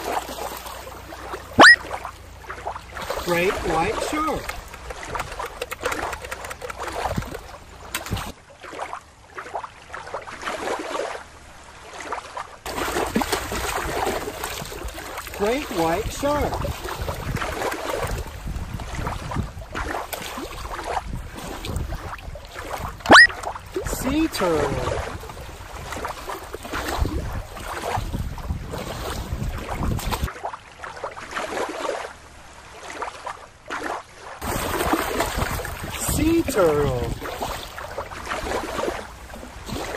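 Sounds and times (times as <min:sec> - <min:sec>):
river water splashing and trickling: 0:00.0 - 0:39.9
wind rumbling on microphone: 0:02.7 - 0:08.4, 0:12.7 - 0:30.3, 0:34.4 - 0:39.9.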